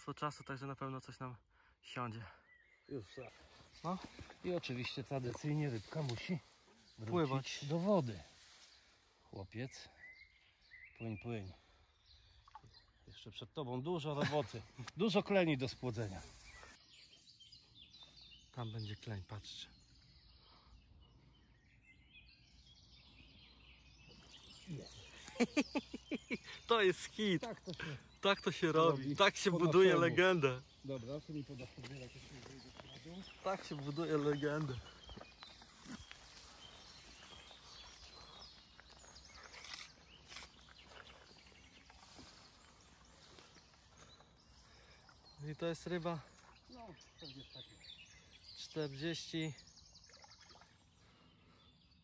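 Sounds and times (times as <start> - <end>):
faint bird chirps: 0.0 - 52.0
rustling of grass and reeds: 3.0 - 9.8, 15.0 - 16.8, 30.4 - 47.6.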